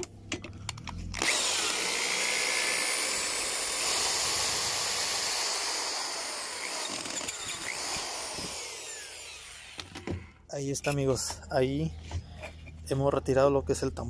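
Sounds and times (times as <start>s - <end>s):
power drill whirring: 1.1s - 10.4s.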